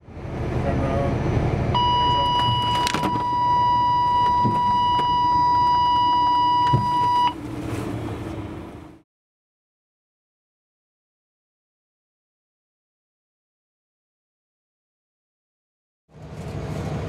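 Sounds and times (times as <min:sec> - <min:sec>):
truck engine and road noise: 0:00.0 - 0:09.0, 0:16.1 - 0:17.0
steady high warning beep: 0:01.8 - 0:07.4.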